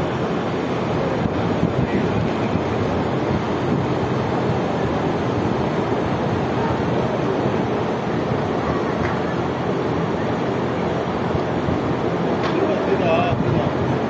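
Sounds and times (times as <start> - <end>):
rushing air: 0.0 - 14.0.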